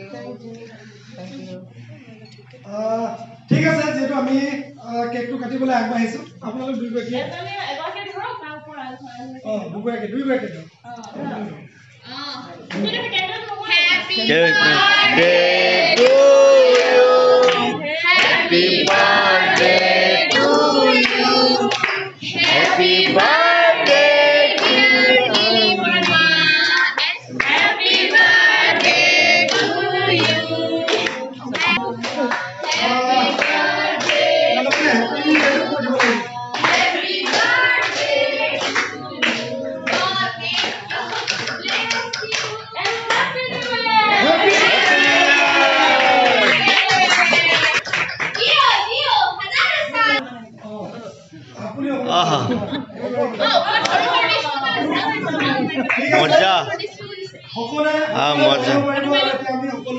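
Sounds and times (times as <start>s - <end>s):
group of people singing: 13.7s - 47.8s
hand-clapping: 33.4s - 43.8s, 46.2s - 48.6s.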